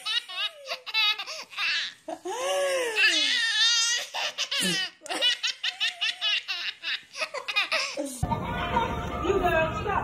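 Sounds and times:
baby belly-laughing: 0:00.0 - 0:02.2, 0:02.8 - 0:08.2.

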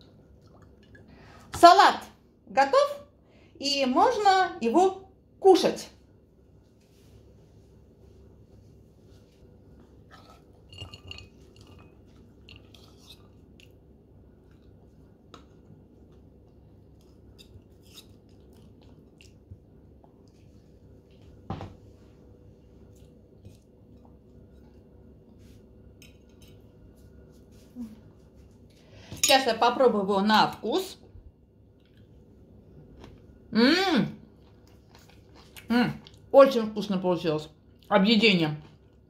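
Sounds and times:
faint steady hum: 0:00.0 - 0:39.0
metal bowl clinking on plate: 0:10.2 - 0:12.6.

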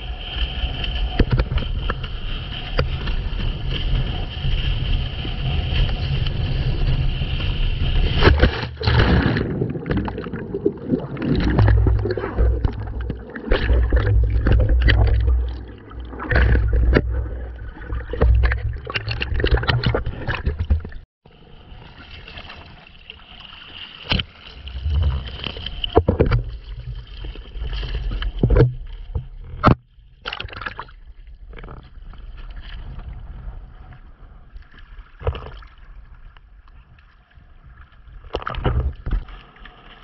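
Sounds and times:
low rumble: 0:00.0 - 0:21.0, 0:24.6 - 0:29.4
water rushing past: 0:07.0 - 0:20.8, 0:21.8 - 0:28.0
loud splash: 0:08.0 - 0:20.6
muffled underwater gurgling: 0:08.2 - 0:21.0.

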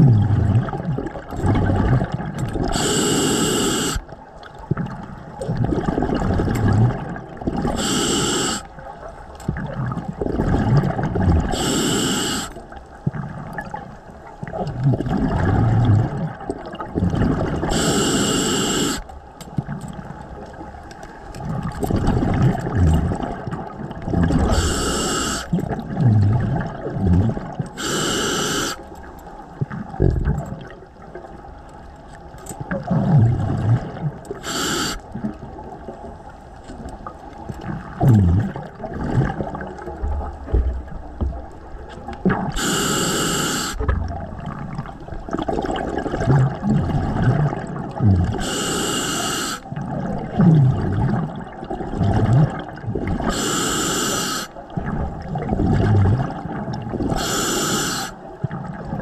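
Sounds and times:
exhaled bubbles rumbling: 0:00.0 - 0:18.3, 0:19.5 - 0:28.0, 0:29.4 - 0:43.0, 0:43.7 - 0:48.7, 0:49.6 - 0:53.4, 0:54.6 - 0:57.5, 0:58.2 - 0:59.0
regulator hiss on inhale: 0:02.7 - 0:04.1, 0:07.8 - 0:08.7, 0:11.5 - 0:12.6, 0:17.7 - 0:19.1, 0:24.5 - 0:25.5, 0:27.7 - 0:28.9, 0:34.4 - 0:35.1, 0:42.6 - 0:43.9, 0:48.4 - 0:49.7, 0:53.3 - 0:54.6, 0:57.2 - 0:58.3.

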